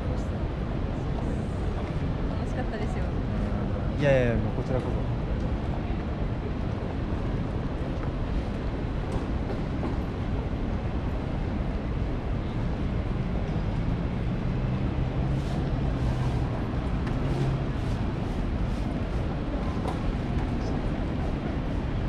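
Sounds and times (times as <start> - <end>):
city street traffic rumble: 0.0 - 22.0
passing vehicle engine hum: 12.0 - 22.0.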